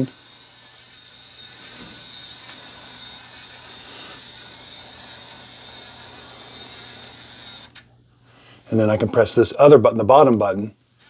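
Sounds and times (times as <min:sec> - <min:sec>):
electric motor whirring: 0:00.0 - 0:07.9.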